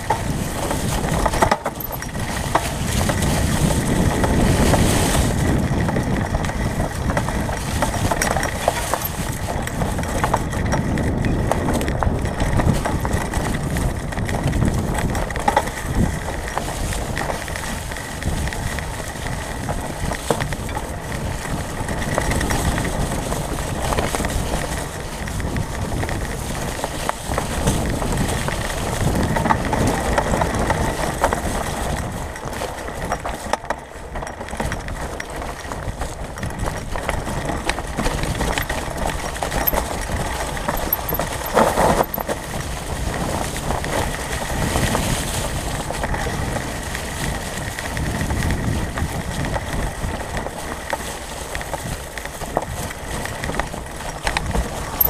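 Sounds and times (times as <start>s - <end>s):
bike clicks and rattles: 0.0s - 55.0s
bike tyres rumbling on dirt: 0.0s - 55.0s
dry leaves crunching: 37.2s - 55.0s.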